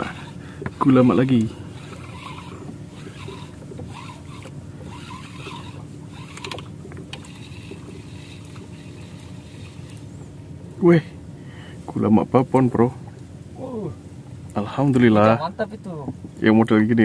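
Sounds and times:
water sloshing against boat hull: 0.0 - 10.8
low motor hum: 0.0 - 16.4.

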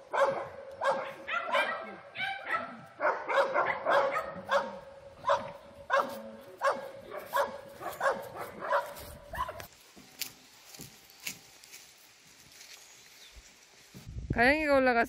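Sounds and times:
dog barking: 0.0 - 9.7.

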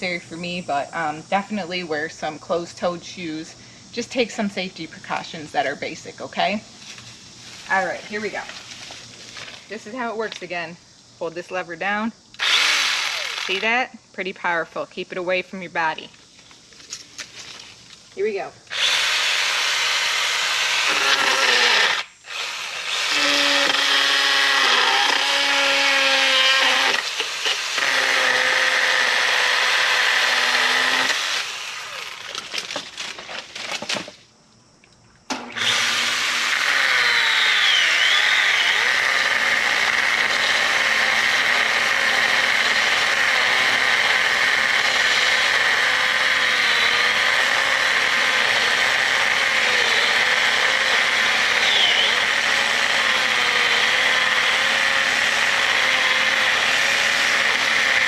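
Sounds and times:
mini chainsaw cutting wood: 12.4 - 13.9, 18.7 - 33.9, 35.4 - 58.0.

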